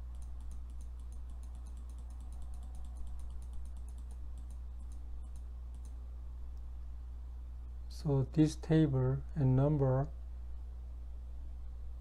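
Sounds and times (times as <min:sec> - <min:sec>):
computer mouse clicking: 0:00.0 - 0:06.7
low electrical hum: 0:00.0 - 0:12.0.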